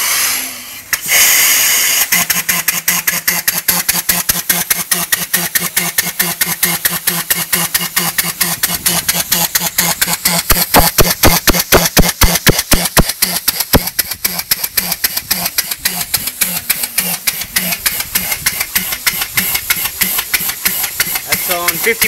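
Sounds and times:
loud rush of air: 0.0 - 2.6
air engine exhaust puffs: 0.0 - 22.0
steady engine hum: 0.0 - 22.0.

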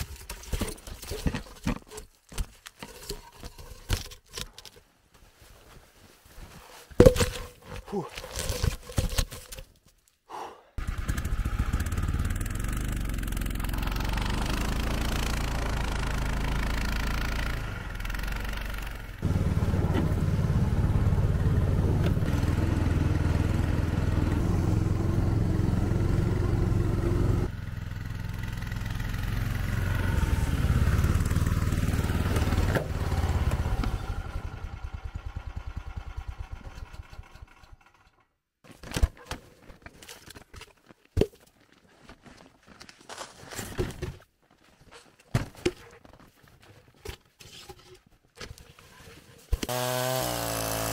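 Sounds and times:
snowmobile engine droning: 10.8 - 37.2.

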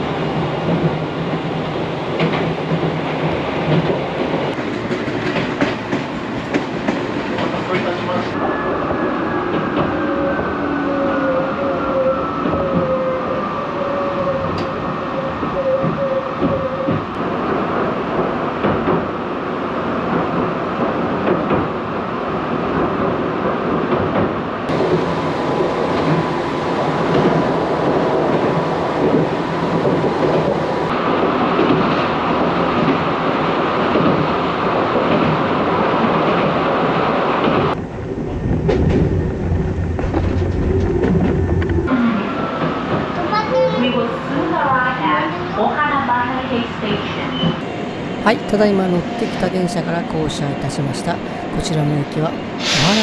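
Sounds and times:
train wheels rumbling on rails: 0.0 - 53.0
clickety-clack over rail joints: 0.1 - 10.0, 15.4 - 19.3, 19.9 - 25.1, 27.0 - 41.9.

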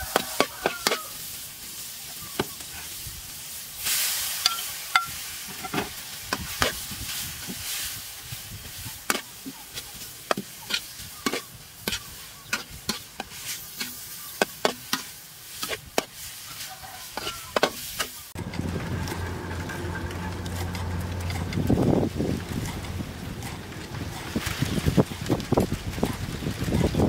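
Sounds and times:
utensils scraping a steel wok: 0.0 - 25.2
food sizzling: 0.0 - 26.7
low hum: 18.4 - 25.2.

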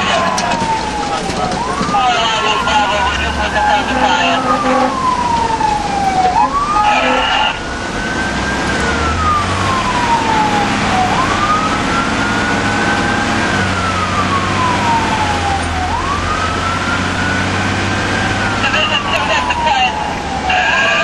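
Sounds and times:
engine hum: 0.0 - 21.0
fire engine siren wailing: 0.0 - 21.0
horn blast: 3.3 - 5.1, 6.8 - 7.6.

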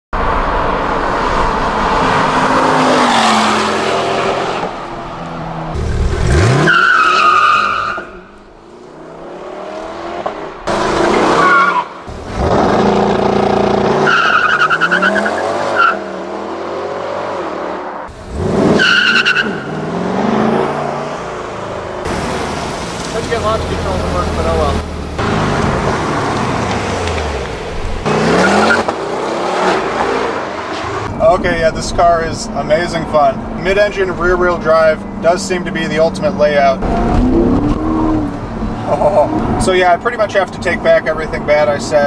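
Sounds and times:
car engine revving: 0.2 - 32.5, 33.4 - 40.0
tyres squealing: 10.7 - 16.1.

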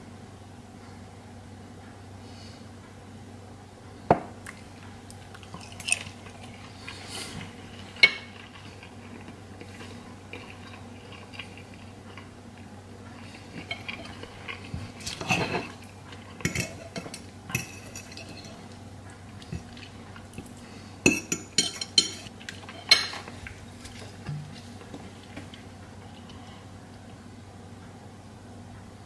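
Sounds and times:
cutlery clinking on a plate: 16.4 - 18.7, 21.1 - 23.3.

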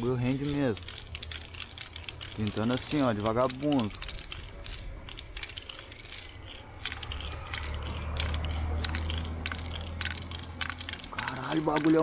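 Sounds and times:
spray paint can hissing: 0.0 - 4.6.

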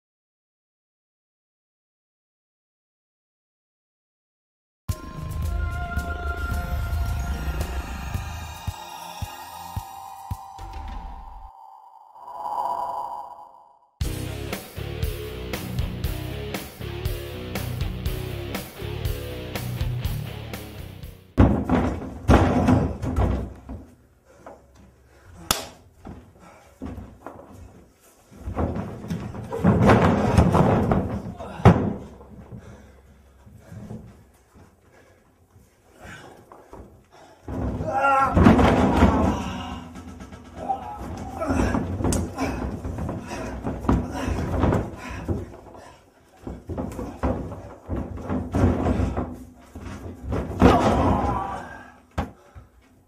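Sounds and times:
bodies slamming on ring mat: 21.4 - 23.9, 28.5 - 32.3, 37.5 - 40.2, 46.4 - 52.5
wrestlers scuffling on mat: 25.9 - 37.8, 41.7 - 50.9
dull thuds: 28.4 - 32.7, 37.5 - 52.7.

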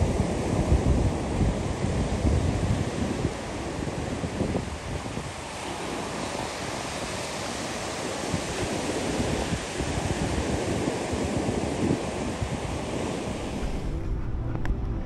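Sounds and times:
ocean surf breaking: 0.0 - 15.0
wind on microphone: 0.0 - 15.0.

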